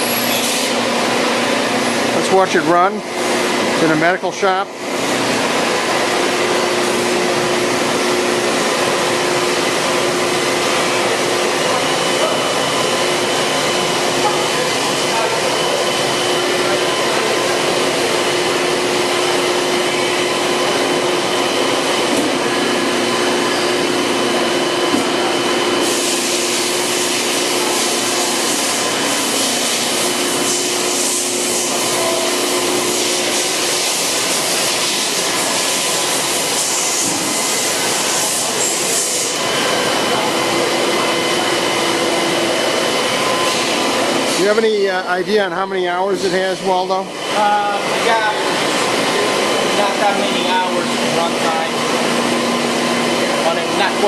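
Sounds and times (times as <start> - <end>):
machine whine: 0.0 - 54.0
coolant spraying hiss: 25.7 - 40.7.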